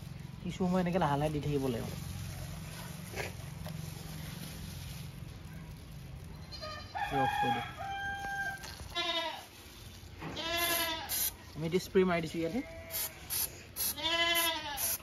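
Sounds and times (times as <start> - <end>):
rooster crowing: 6.6 - 8.9.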